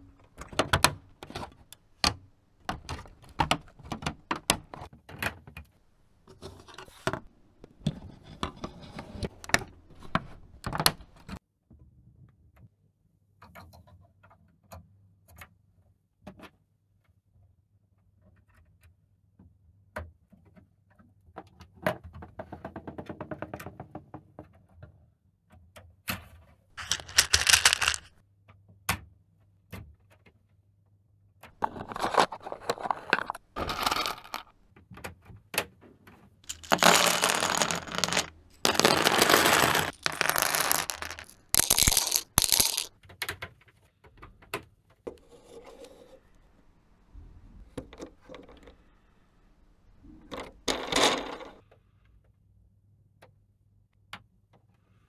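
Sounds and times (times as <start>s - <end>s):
loose plastic parts rattling: 26.8s - 28.1s, 31.6s - 34.5s.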